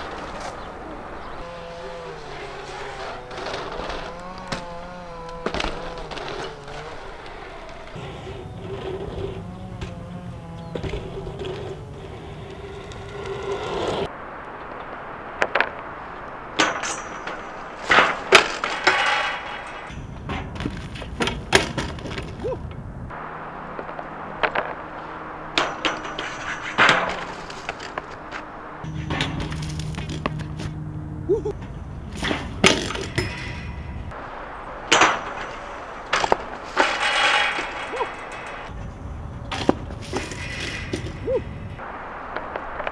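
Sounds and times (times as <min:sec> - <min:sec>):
scraping rustle in shrubs: 0:00.0 - 0:14.1
bike tyres rolling on concrete: 0:00.0 - 0:42.9
loud crashing impacts: 0:15.4 - 0:42.9.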